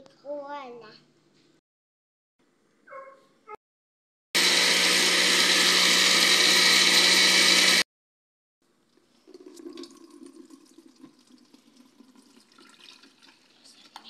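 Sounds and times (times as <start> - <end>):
electric blender running: 4.4 - 7.9
juice pouring and splashing: 8.8 - 14.0.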